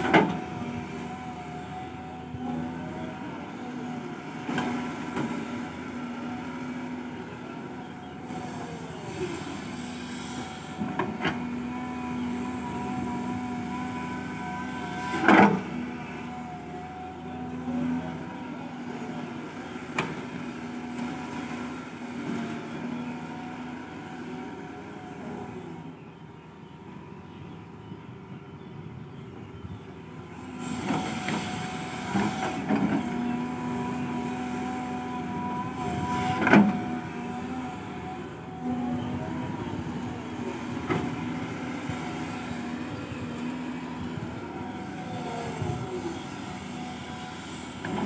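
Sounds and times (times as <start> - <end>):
diesel engine running: 0.0 - 48.0
hydraulic whine: 29.6 - 48.0.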